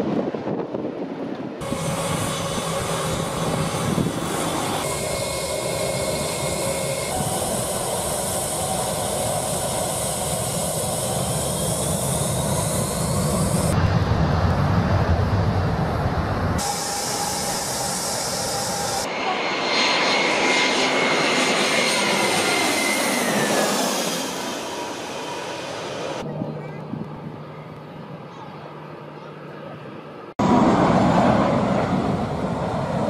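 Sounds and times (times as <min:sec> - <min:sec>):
deep rumble: 0:01.6 - 0:19.1
jet engines spooling up: 0:01.6 - 0:26.3, 0:30.4 - 0:33.0.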